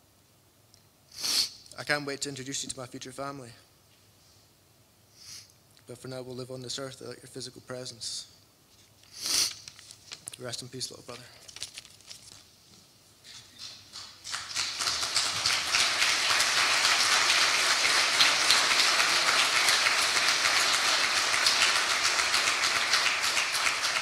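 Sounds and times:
crowd applauding: 13.6 - 24.0.

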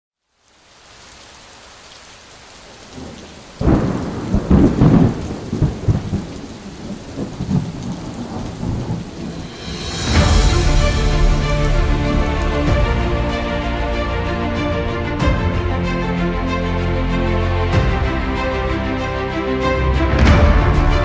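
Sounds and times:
steady rain hiss: 0.2 - 21.0
thunder clap rumbling: 2.9 - 14.0
music: 9.3 - 21.0.

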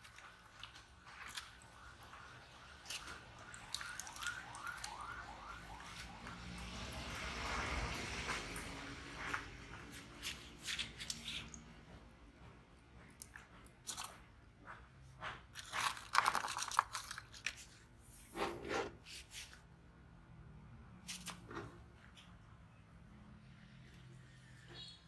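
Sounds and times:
plastic tubs crinkling and clicking: 15.5 - 17.9.

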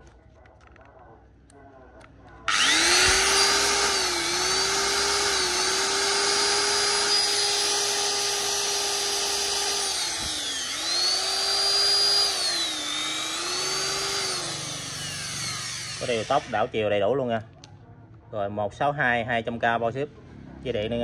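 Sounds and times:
electric drill whining: 2.5 - 16.7.

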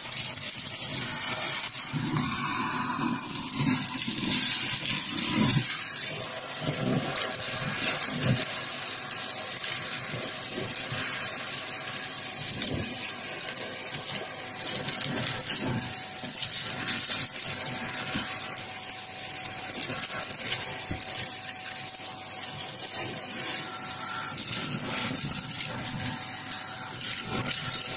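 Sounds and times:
vacuum cleaner running: 0.0 - 27.9.

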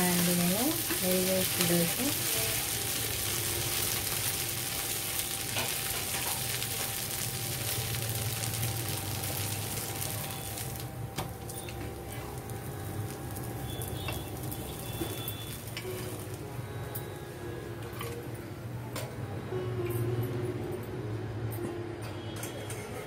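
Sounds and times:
ghee sizzling on a hot griddle: 0.0 - 17.0.

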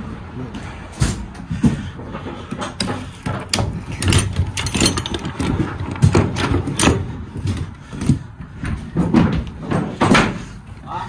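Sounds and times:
metal ratchets clacking and rattling: 2.7 - 7.0.

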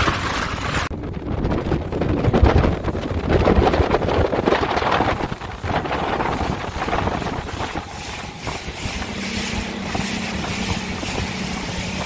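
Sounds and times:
hull slapping water: 0.0 - 12.0
outboard motor hum: 0.0 - 12.0
wind buffeting microphone: 0.0 - 12.0.

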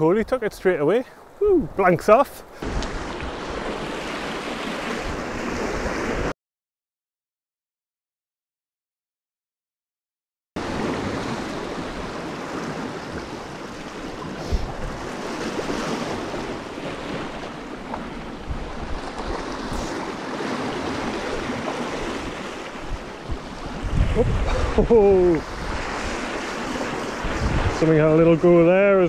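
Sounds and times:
surf washing over rocks: 0.0 - 6.3, 10.6 - 29.0
wind on microphone: 2.6 - 6.3, 10.7 - 28.8.

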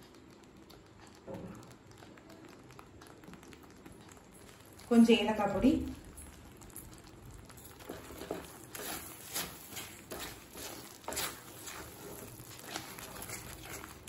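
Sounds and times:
spatula scraping sticky food: 7.8 - 14.0.

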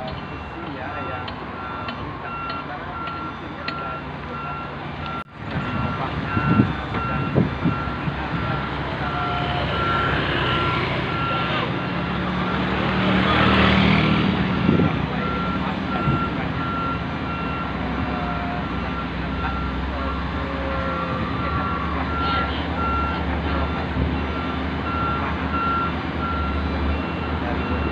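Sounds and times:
machinery warning beeps: 0.0 - 12.6, 14.6 - 27.9
diesel engine rumble: 0.0 - 27.9.

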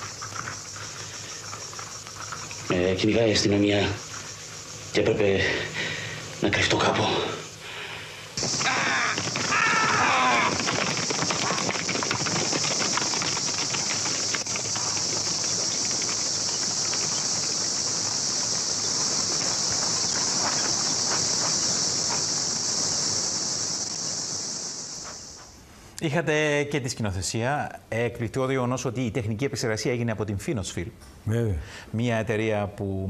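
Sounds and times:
insect chorus drone: 0.0 - 26.2
curving call: 8.4 - 21.6.

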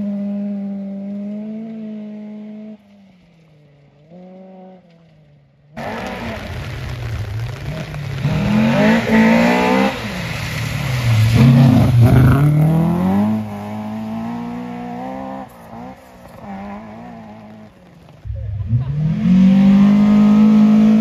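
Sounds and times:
rally car engine at full throttle: 0.0 - 21.0.

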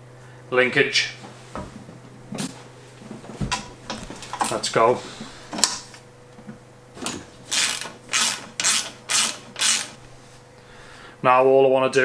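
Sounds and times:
ratchet driver clicking: 7.5 - 10.0.

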